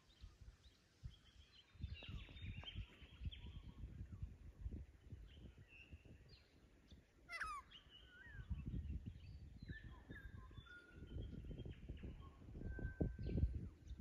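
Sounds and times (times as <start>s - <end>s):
birds calling: 7.3s - 8.6s.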